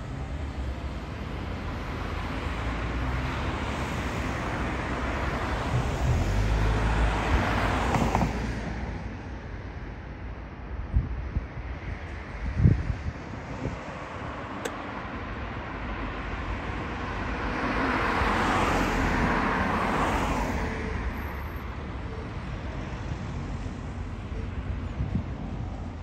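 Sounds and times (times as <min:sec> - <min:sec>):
wind rumble on microphone: 0:05.3 - 0:09.2, 0:10.2 - 0:17.2, 0:22.5 - 0:26.0.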